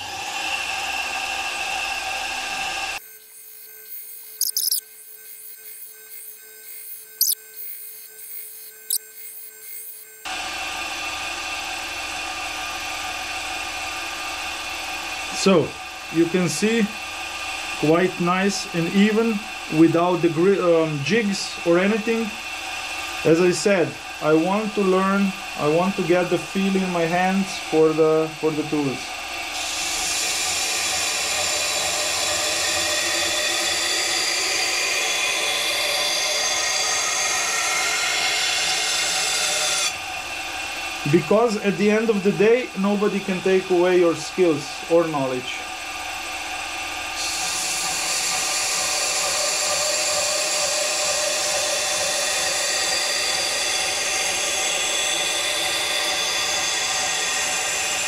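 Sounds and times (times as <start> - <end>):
belt grinder grinding steel: 2.6 - 10.4.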